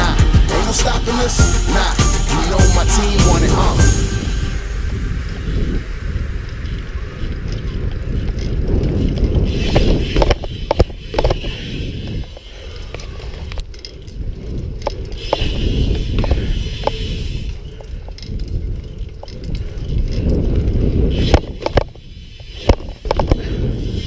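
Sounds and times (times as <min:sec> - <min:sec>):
wind on camera: 0:03.5 - 0:24.0
bike tyres rumbling on asphalt: 0:05.2 - 0:24.0
bike clicks and knocks: 0:07.4 - 0:23.8.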